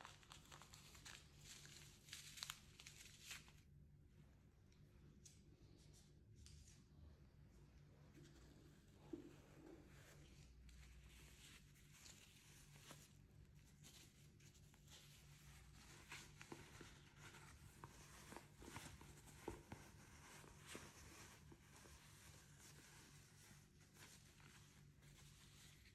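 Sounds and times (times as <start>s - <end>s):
fabric pouch rustling: 8.1s - 25.9s.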